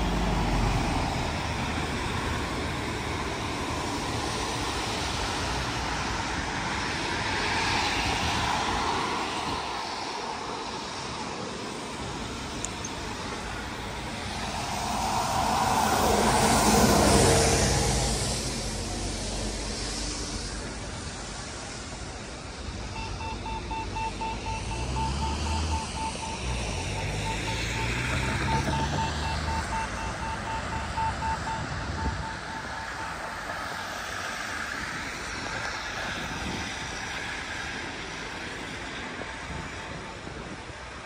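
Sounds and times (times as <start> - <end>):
road traffic: 0.0 - 41.0
vehicle engine rumbling: 11.9 - 37.4
rapid electronic beeping: 23.0 - 33.4.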